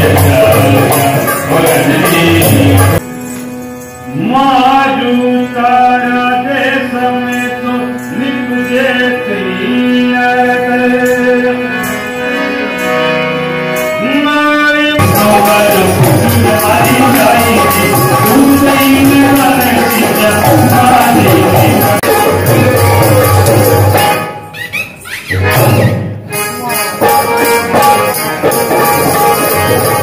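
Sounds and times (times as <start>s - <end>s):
drum-led folk music: 0.0s - 4.2s, 15.0s - 30.0s
harmonium: 0.0s - 30.0s.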